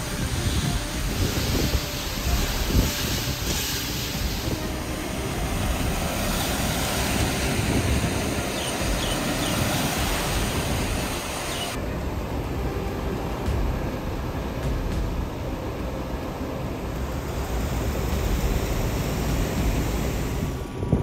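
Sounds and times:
cars driving through flood water: 0.0 - 21.0
heavy rain: 0.0 - 21.0
low vehicle rumble: 0.0 - 21.0.

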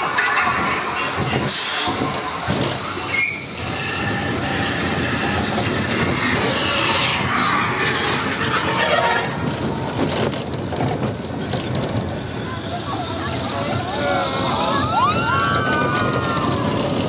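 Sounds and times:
roller coaster wheels rumbling: 0.0 - 17.0
brief squeal: 3.1 - 4.3, 5.2 - 9.8.

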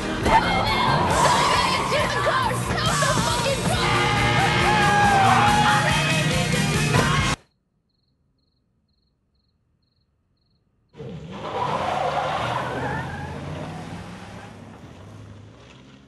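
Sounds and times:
minivan engine: 11.0 - 16.0
tire squeal: 11.0 - 16.0.

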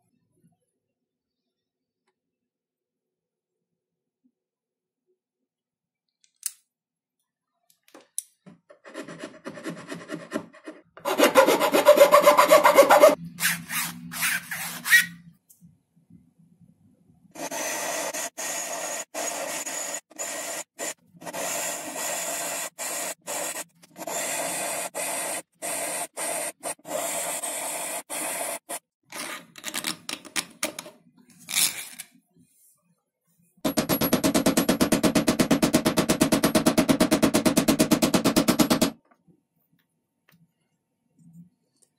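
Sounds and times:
metal file rasping on wood: 8.9 - 13.2.

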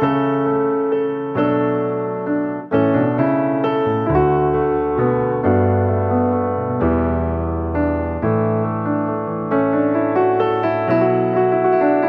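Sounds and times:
slow piano chords: 0.0 - 12.0.

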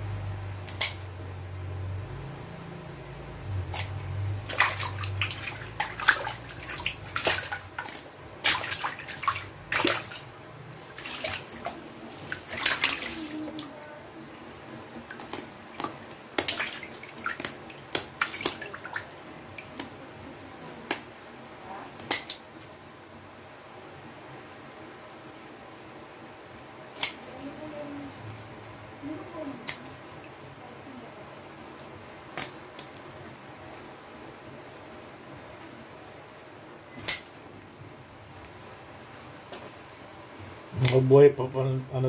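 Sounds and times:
water splashing: 3.6 - 20.1.

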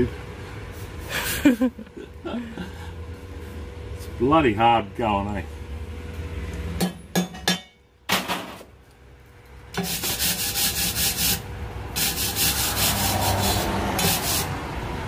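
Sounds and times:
sandpaper rubbing on steel: 9.8 - 11.4, 12.0 - 14.6.

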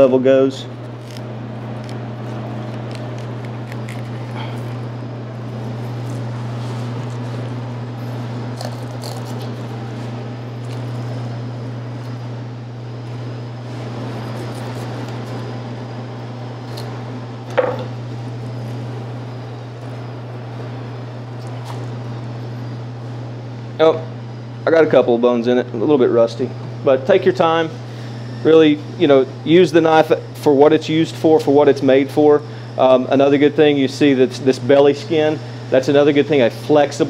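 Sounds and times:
steady low hum: 0.0 - 37.0
knife cutting along fish bones: 0.9 - 4.8, 8.5 - 9.9, 14.0 - 15.5.

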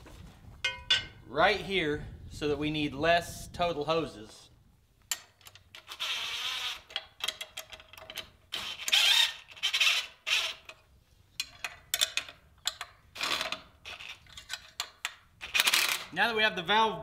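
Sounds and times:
cordless driver bursts: 8.6 - 10.7.

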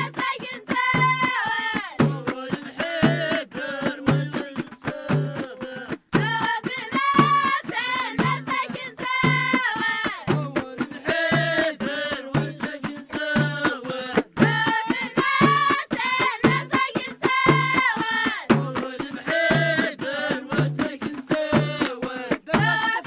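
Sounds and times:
drum beat: 0.0 - 23.0
hand percussion: 0.0 - 23.0
children singing: 6.3 - 10.2, 14.4 - 18.5.

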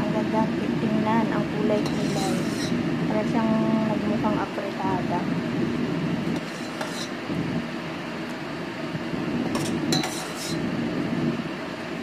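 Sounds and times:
steady background hum: 0.0 - 12.0
metal ladle clinking against pot: 9.6 - 10.6.

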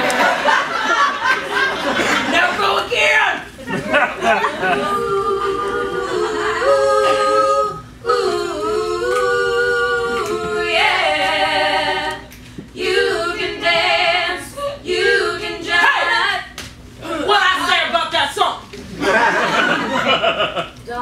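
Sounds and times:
women singing a cappella: 3.8 - 16.6.

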